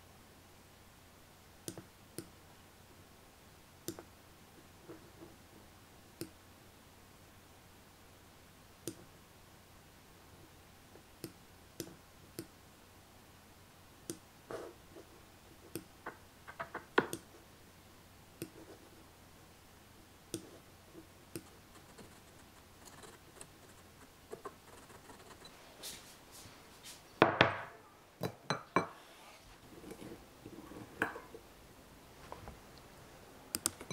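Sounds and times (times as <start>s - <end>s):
computer mouse clicks: 17.0s - 17.3s, 33.5s - 33.9s.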